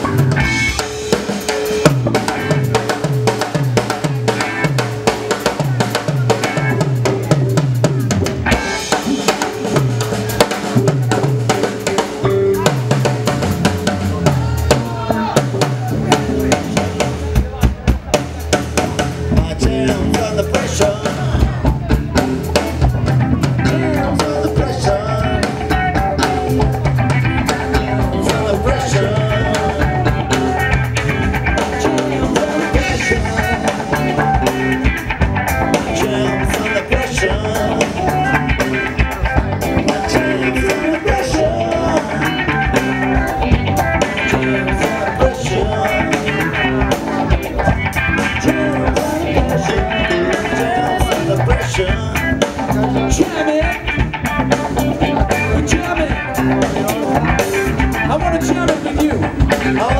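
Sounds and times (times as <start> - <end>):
drum kit: 0.0 - 59.9
electric bass: 0.0 - 59.9
electric guitar: 0.0 - 59.9
wavering lead melody: 0.0 - 59.9.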